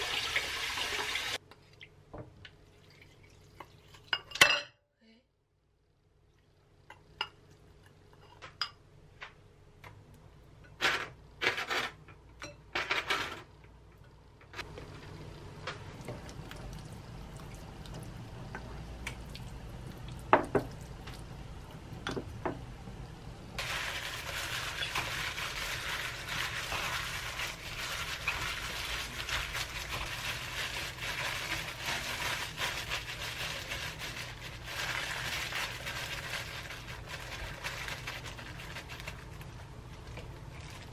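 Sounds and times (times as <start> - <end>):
plastic glove rustling: 23.6 - 40.9.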